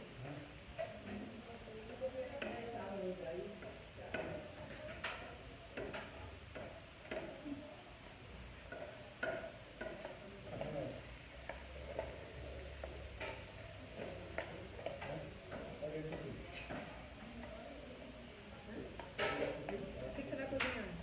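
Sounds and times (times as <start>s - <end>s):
potatoes sizzling in a pan: 7.8s - 21.0s.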